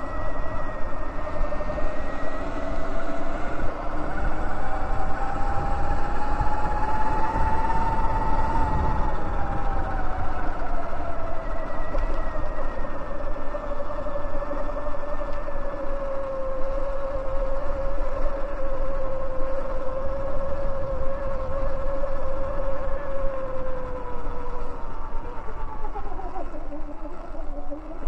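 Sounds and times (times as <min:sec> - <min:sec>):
electric dirt bike motor whining: 0:00.0 - 0:28.0
wind rumble on microphone: 0:00.0 - 0:28.0.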